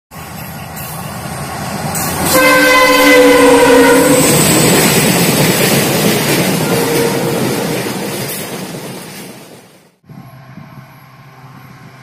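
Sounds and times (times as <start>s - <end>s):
moving train rumble and rattle: 0.1s - 12.0s
locomotive horn blast: 2.2s - 4.4s, 6.6s - 7.5s.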